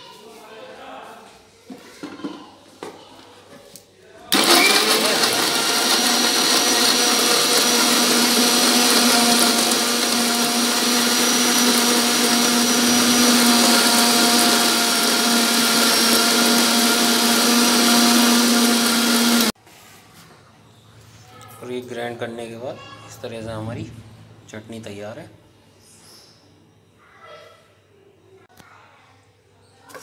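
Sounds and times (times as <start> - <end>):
mixer grinder whirring: 4.3 - 19.6.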